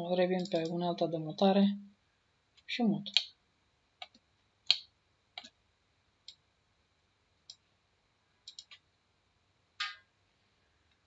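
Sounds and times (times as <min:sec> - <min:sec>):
computer mouse clicks: 0:00.4 - 0:00.8, 0:04.0 - 0:05.6, 0:06.2 - 0:06.4, 0:08.4 - 0:08.8.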